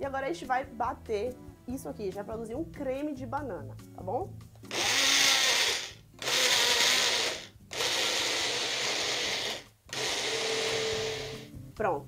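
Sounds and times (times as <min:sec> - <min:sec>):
blender motor whirring: 0:04.7 - 0:11.5.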